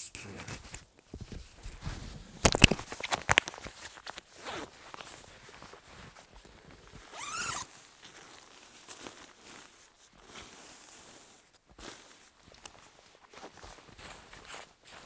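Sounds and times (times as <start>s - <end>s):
rustling: 0.2s - 15.0s
zipper being pulled: 7.1s - 7.7s.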